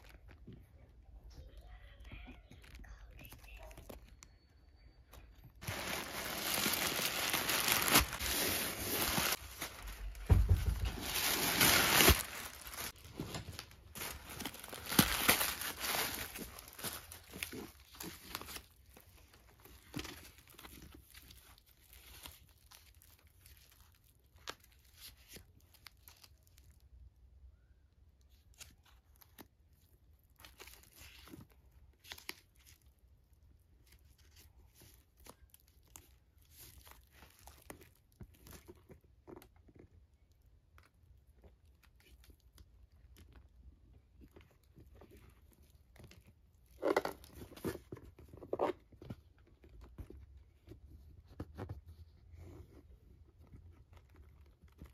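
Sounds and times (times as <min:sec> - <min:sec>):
packing wrap crinkling and tearing: 0:05.6 - 0:26.8.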